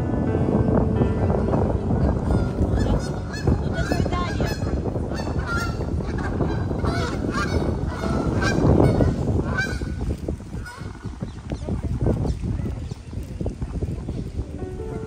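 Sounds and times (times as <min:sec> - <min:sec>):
waterfowl honking: 0:01.4 - 0:11.2.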